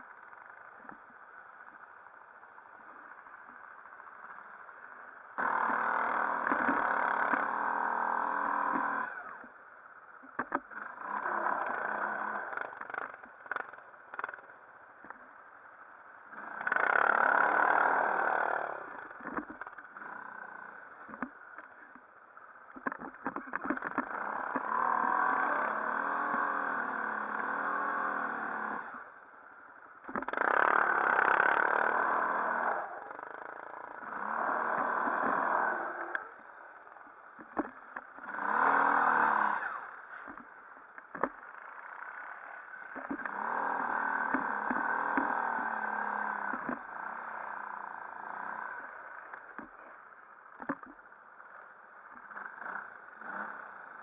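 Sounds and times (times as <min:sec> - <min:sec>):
atv engine revving: 0:05.4 - 0:09.5, 0:10.4 - 0:14.5, 0:16.2 - 0:21.3, 0:22.8 - 0:29.2, 0:30.0 - 0:36.6, 0:37.4 - 0:49.9, 0:52.1 - 0:54.0.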